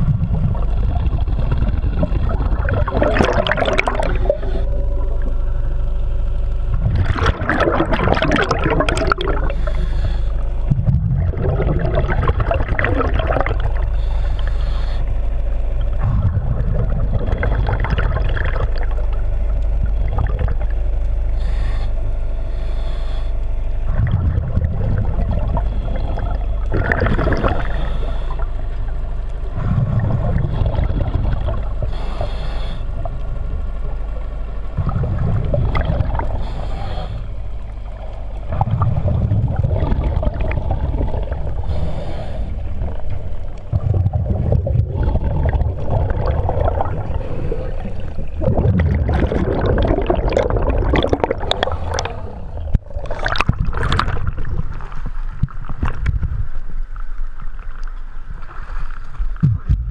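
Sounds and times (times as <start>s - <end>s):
exhaled bubbles rumbling: 0.0s - 59.9s
water splashing: 2.0s - 4.5s, 6.8s - 9.7s, 42.8s - 56.7s
diver breathing through regulator: 3.4s - 5.0s, 8.3s - 10.8s, 13.5s - 16.2s, 21.3s - 24.0s, 25.4s - 28.9s, 31.6s - 33.1s, 36.0s - 38.3s, 41.0s - 43.7s, 45.2s - 48.6s, 49.4s - 53.5s.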